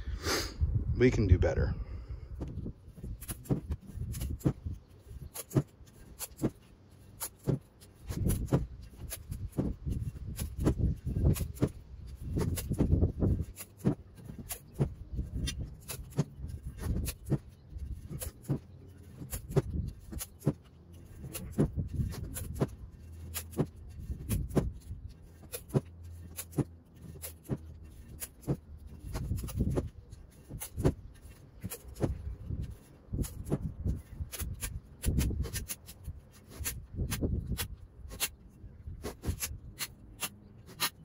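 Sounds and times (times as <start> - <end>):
masking tape pulled and torn: 2.9 - 41.0.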